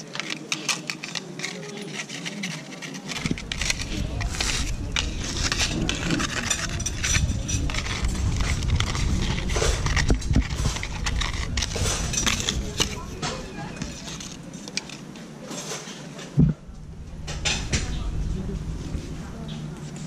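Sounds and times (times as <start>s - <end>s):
dry leaf rustling and crackling: 0.0s - 15.0s
steady low rumble: 3.2s - 15.0s, 16.4s - 20.0s.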